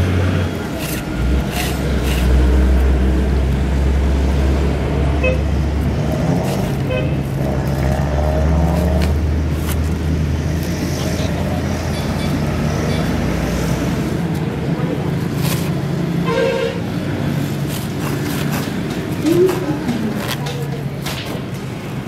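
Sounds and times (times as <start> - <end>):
traffic engine rumble: 0.0 - 22.0
horn toots: 16.2 - 16.9.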